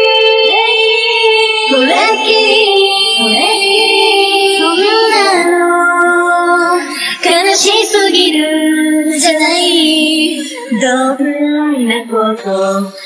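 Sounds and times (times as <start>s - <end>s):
a cappella group singing: 0.0s - 13.0s.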